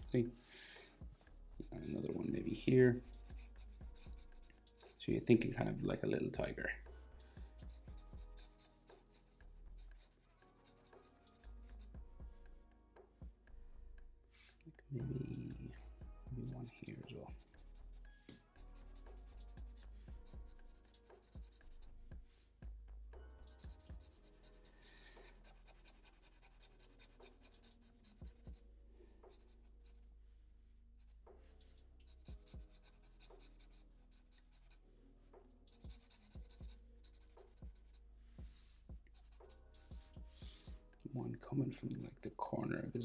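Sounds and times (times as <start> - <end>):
marker scratching on paper: 0.3 - 5.6, 6.8 - 12.4, 15.7 - 22.6, 23.4 - 28.6, 29.2 - 30.4, 31.0 - 40.8.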